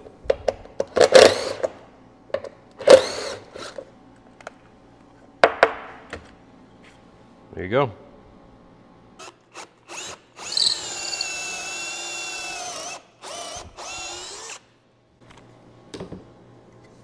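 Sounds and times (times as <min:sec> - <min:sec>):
cordless drill boring into wood: 0:09.9 - 0:14.6.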